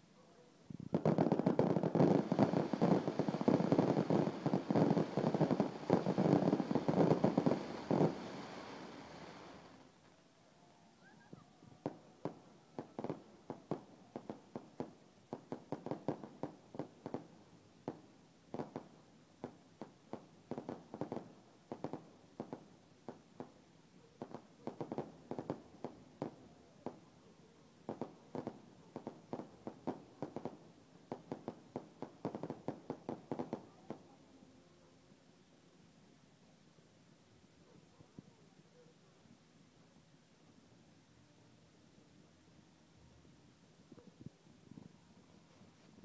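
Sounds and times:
fireworks bangs and pops: 0.8 - 9.9, 11.8 - 23.6, 24.2 - 27.1, 27.8 - 34.2.

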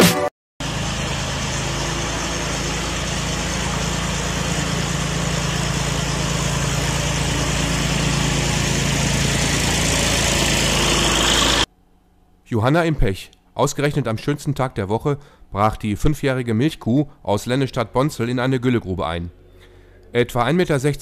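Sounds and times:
tractor engine running: 0.6 - 11.7
scraper rushing over concrete: 0.7 - 11.7.

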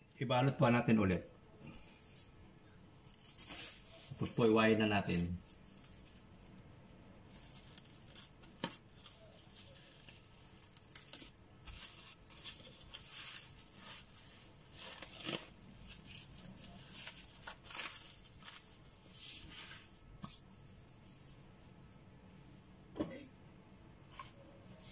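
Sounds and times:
cling film crinkling: 3.0 - 19.0.

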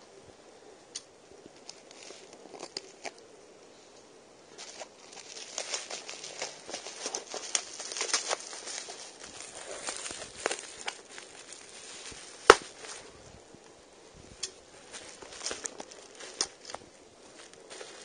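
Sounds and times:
bubble wrap crinkling: 1.6 - 3.2, 4.5 - 13.3, 14.4 - 18.0.

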